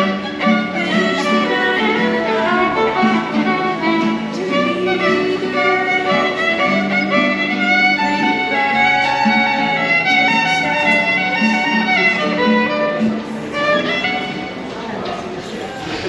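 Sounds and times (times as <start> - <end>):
violin melody: 0.0 - 15.1
acoustic guitar accompaniment: 0.0 - 16.0.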